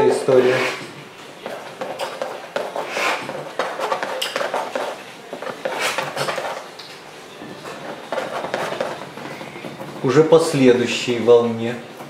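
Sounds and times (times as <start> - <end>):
palette knife scraping: 0.4 - 6.7, 7.5 - 9.6.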